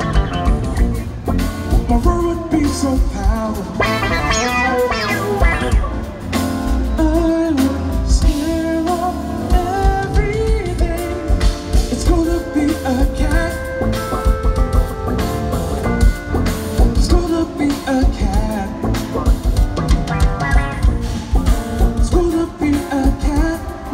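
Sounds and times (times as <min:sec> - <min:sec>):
drum kit: 0:00.0 - 0:23.9
electric bass: 0:00.0 - 0:23.9
keyboards: 0:00.0 - 0:23.9
man singing: 0:01.7 - 0:14.3, 0:16.8 - 0:19.4, 0:20.6 - 0:23.9.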